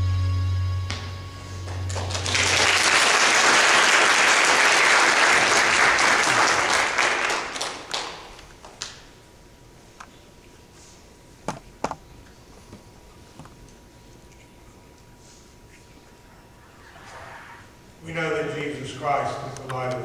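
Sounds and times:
held chord: 0.0 - 2.0
congregation applauding: 1.6 - 9.0.

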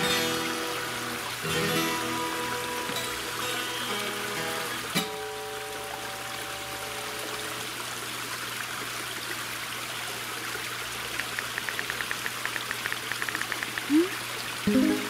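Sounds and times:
strummed guitar chord: 0.0 - 5.2, 14.7 - 15.0
waterfall splashing into pond: 0.0 - 15.0
rapid light ticks: 11.1 - 14.0.

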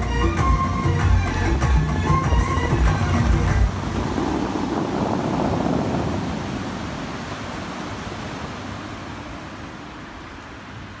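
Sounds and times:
water jets crashing into lake: 2.4 - 10.9.

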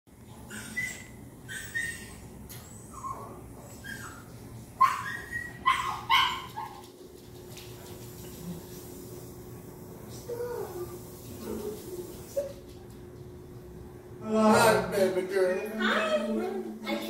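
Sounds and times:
dog barking and yipping: 0.5 - 2.2, 4.8 - 6.9.

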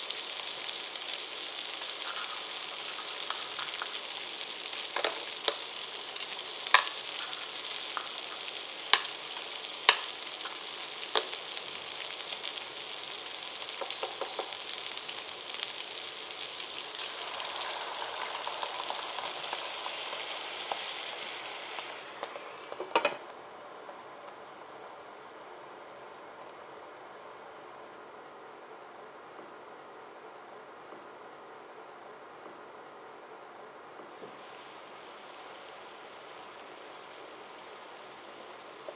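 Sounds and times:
fish sizzling in a frying pan: 0.0 - 23.2, 34.3 - 38.9
clam shells clacking on pan: 6.7 - 9.2.

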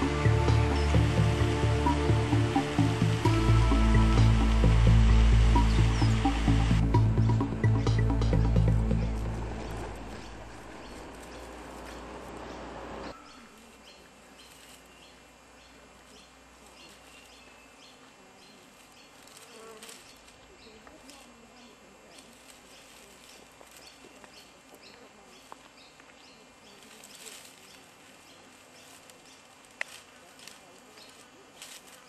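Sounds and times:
background music: 0.0 - 10.9
flies buzzing: 0.0 - 25.6.

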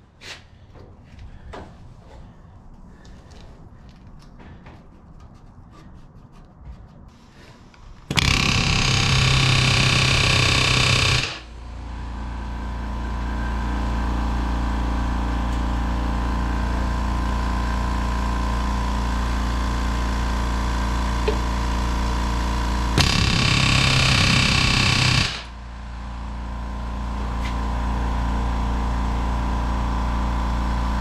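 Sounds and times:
air compressor motor hum: 7.1 - 31.0
pneumatic rivet gun rattling: 8.0 - 11.4, 23.0 - 25.5.

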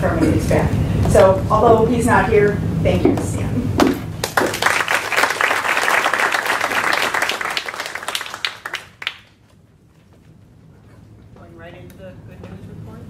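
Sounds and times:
people applauding: 4.2 - 9.5.

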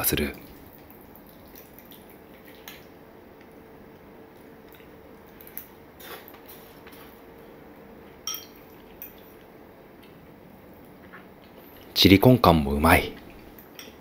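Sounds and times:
faint steady hum: 0.0 - 14.0
fork clinking on ceramic dishes: 8.2 - 9.2.

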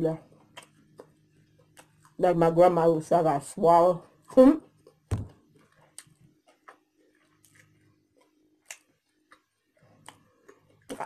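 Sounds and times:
mouth clicks while chewing: 0.4 - 2.2, 5.6 - 11.0.

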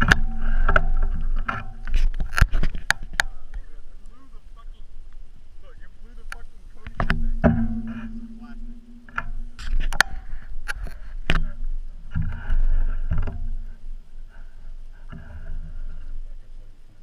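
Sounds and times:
sharp cracks and knocks: 0.0 - 3.7, 6.3 - 13.7
low rumble: 0.0 - 17.0
debris thumping down: 6.9 - 13.6.

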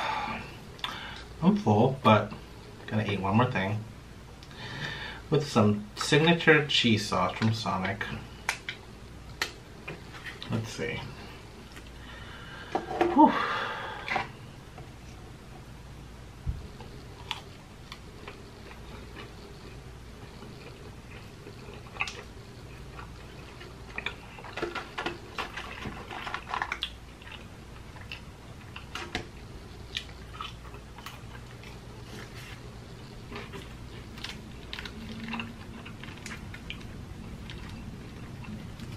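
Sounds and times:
faint low hum: 0.0 - 38.9
person chewing: 16.7 - 38.9.

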